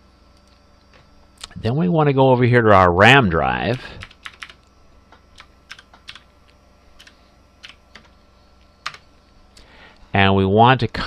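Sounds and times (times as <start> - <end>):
faint hum: 0.0 - 11.0.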